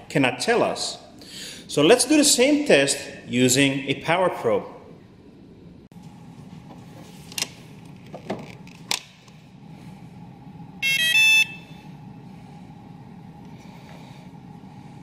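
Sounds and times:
steady low hum: 0.0s - 15.0s
electronic tester beep: 10.8s - 11.8s.

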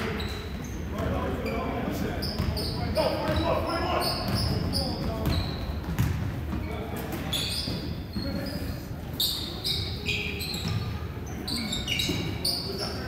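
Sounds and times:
sneakers squeaking on floor: 0.0s - 13.0s
basketball bouncing: 4.2s - 6.6s, 10.6s - 10.9s.

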